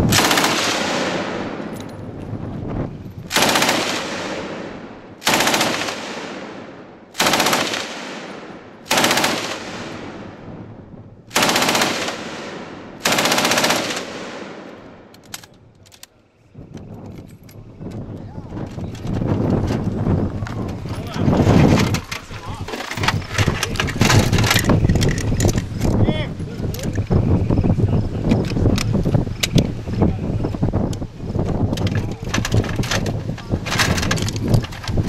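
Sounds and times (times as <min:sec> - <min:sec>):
machine gun bursts with echo: 0:00.0 - 0:01.7, 0:03.3 - 0:10.4, 0:11.3 - 0:14.8.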